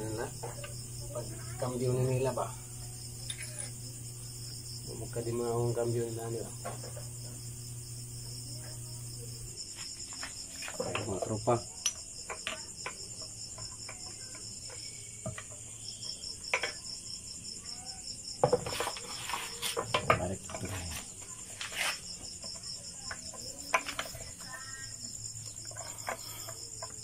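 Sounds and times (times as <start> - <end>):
crickets chirping: 0.0 - 27.0.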